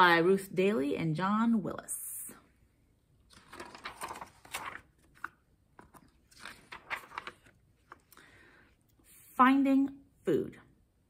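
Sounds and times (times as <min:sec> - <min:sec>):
book pages rustling: 0:03.2 - 0:08.2.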